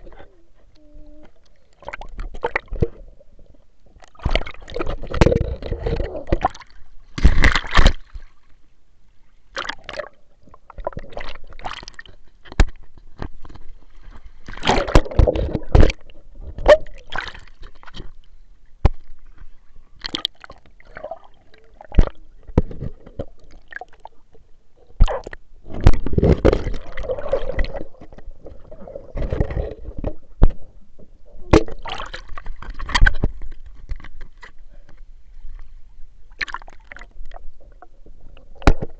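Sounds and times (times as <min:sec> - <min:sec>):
pool water sloshing and splashing: 0:01.4 - 0:08.6, 0:09.5 - 0:18.3, 0:25.0 - 0:30.7, 0:31.5 - 0:34.5, 0:36.3 - 0:38.9.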